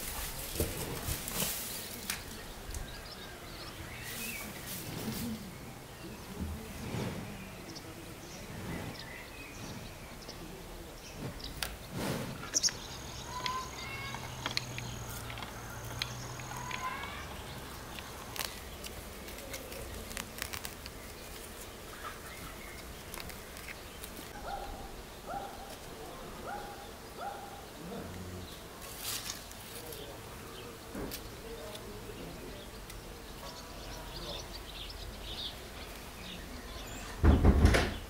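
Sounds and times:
small birds chirping: 0.3s - 38.0s.

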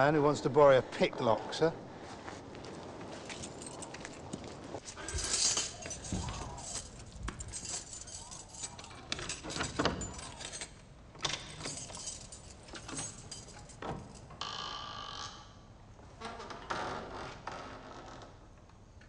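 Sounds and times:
lock picking clicks and scrapes: 4.8s - 14.4s.

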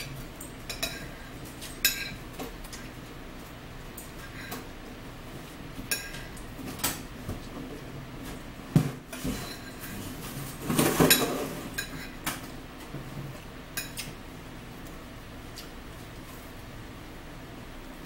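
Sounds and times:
metal spoon scraping a plate: 9.2s - 9.9s.

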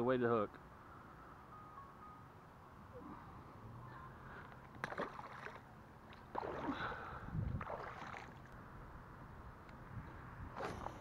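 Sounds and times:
water sloshing around wading legs: 4.6s - 8.6s, 10.6s - 11.0s.

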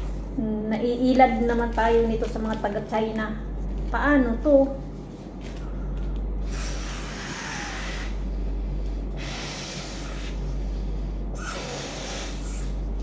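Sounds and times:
person blowing into pillow valve: 6.4s - 12.8s.

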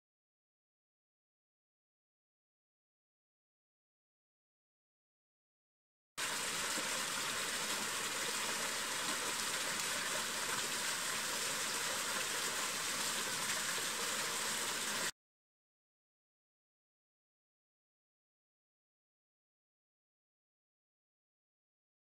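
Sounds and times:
waterfall splashing over rock: 6.2s - 15.1s.

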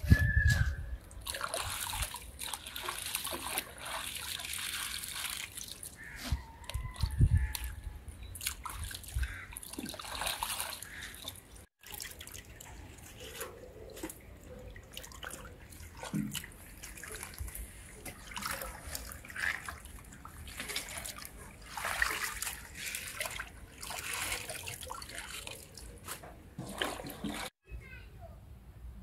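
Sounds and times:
water sloshing and dripping: 1.0s - 27.6s
small water splashes: 1.1s - 7.8s, 8.4s - 26.0s, 26.6s - 27.6s
hands squeezing wet leaves: 14.8s - 26.0s.

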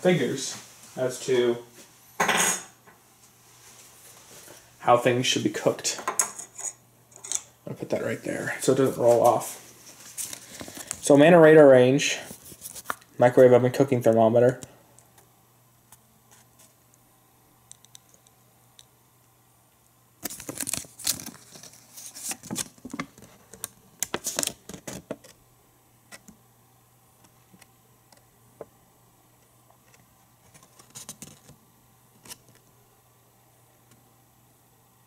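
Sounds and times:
clicking and rustling of objects and paper: 9.8s - 11.1s, 12.2s - 13.1s, 15.9s - 16.8s, 20.2s - 25.4s, 29.4s - 32.7s.

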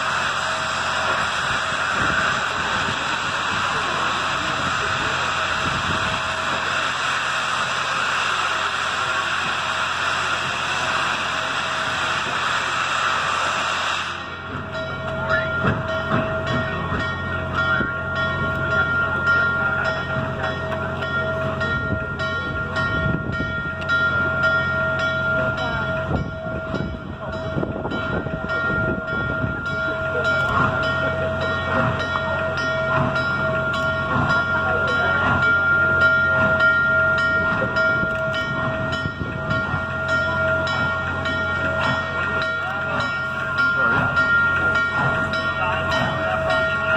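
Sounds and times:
hissing steam: 0.0s - 46.9s
steam locomotive puffs: 0.0s - 46.9s.

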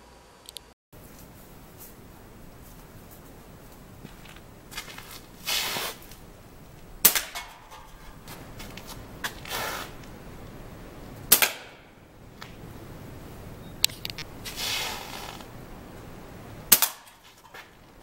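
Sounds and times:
brief air hiss: 5.4s - 6.0s, 9.5s - 10.0s, 14.4s - 15.4s
pellet pistol pops: 11.3s - 11.8s, 16.7s - 17.1s.

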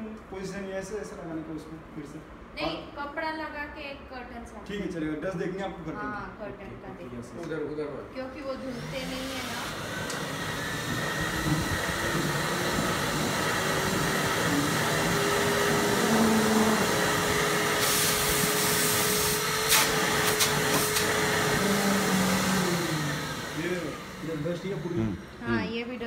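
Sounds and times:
vacuum cleaner running: 8.5s - 25.7s.

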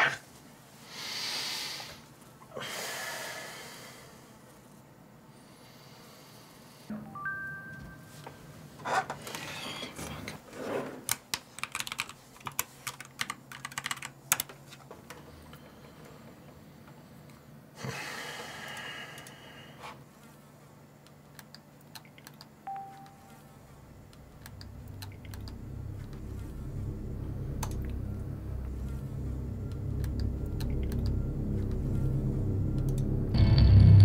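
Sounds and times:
computer keyboard typing: 11.6s - 14.6s
steady low hum: 14.8s - 34.0s.

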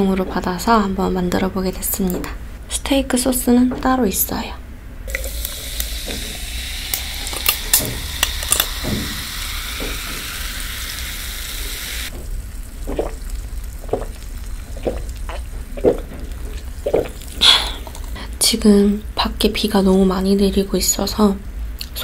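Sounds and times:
cola pouring into a glass: 5.1s - 18.2s
carbonation fizzing: 5.1s - 18.4s
person swallowing: 12.7s - 18.3s.

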